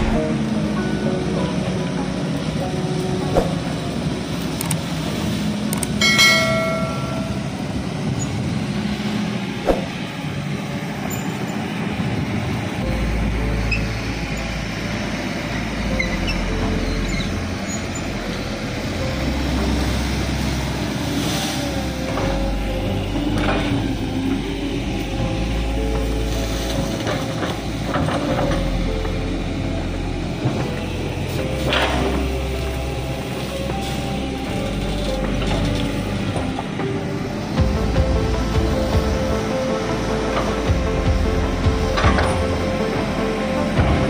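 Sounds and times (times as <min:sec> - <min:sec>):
deep low rumble: 0:00.0 - 0:01.2, 0:21.8 - 0:44.0
excavator diesel engine running: 0:00.0 - 0:44.0.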